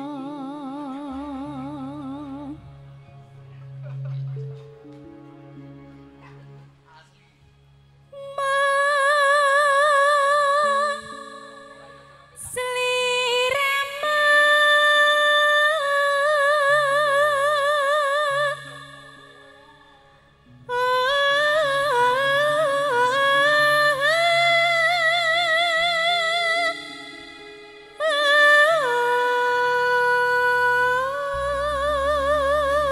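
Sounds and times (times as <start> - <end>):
woman singing with vibrato: 0.0 - 2.6, 8.2 - 19.6, 20.7 - 32.9
soft keyboard and bass: 0.0 - 32.9.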